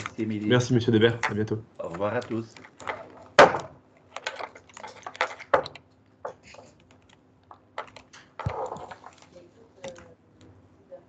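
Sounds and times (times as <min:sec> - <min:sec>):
faint low hum: 0:00.0 - 0:11.0
keyboard typing: 0:04.0 - 0:10.2.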